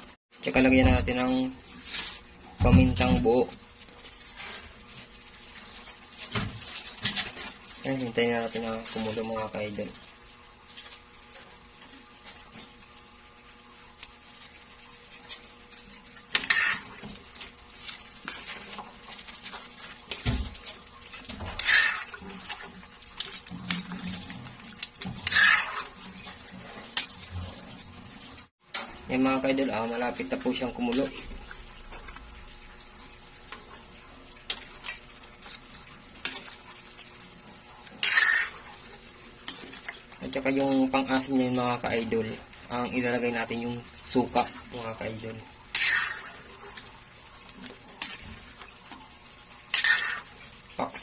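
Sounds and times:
metal ladle stirring in pan: 14.4 - 27.8, 34.4 - 41.0, 44.4 - 51.0
metal spatula scraping metal pan: 16.3 - 17.1, 25.0 - 26.0, 37.9 - 38.6, 45.7 - 46.4, 49.7 - 50.4
ladle scraping pan: 16.3 - 27.7, 37.8 - 38.8, 45.7 - 46.9, 49.6 - 51.0.

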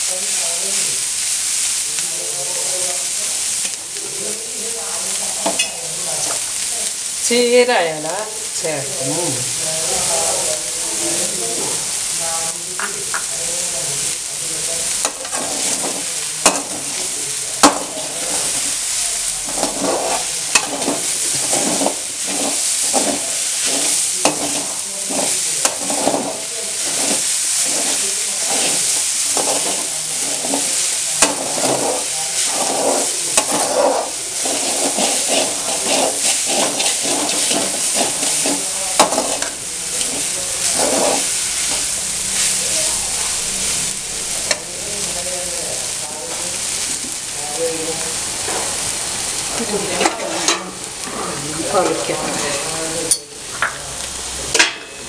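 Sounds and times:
vegetables sizzling in a pan: 0.0 - 55.0
spatula scraping a pan: 14.9 - 45.3.

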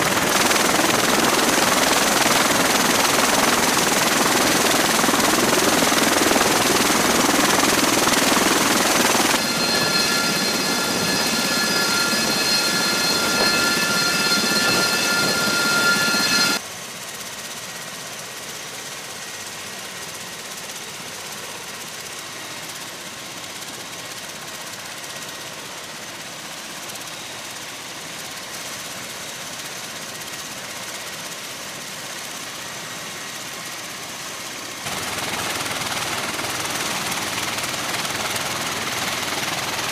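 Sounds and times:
aircraft engines and rotors rushing: 0.0 - 16.6, 32.8 - 39.9
high engine whine: 0.0 - 16.6.

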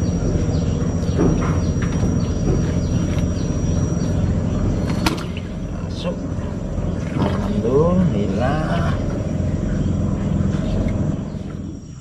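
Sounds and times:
steady low rumble: 0.0 - 12.0
fish flapping and knocking on wood: 4.9 - 5.3.

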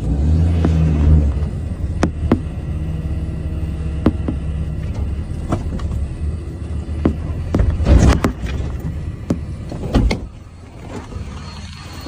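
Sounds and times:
vehicle engine running: 0.0 - 12.0
sharp knocks: 2.0 - 2.6, 4.0 - 4.5, 7.0 - 8.6.

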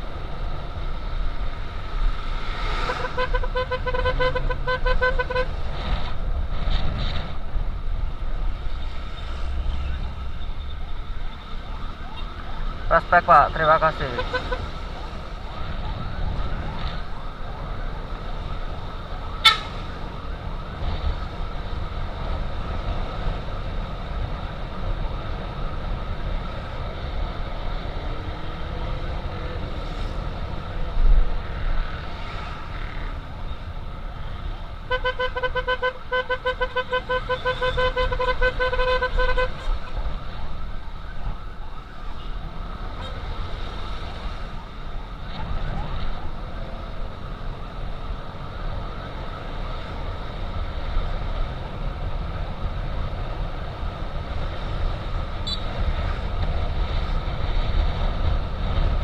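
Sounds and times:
siren beeping: 55.4 - 55.8.

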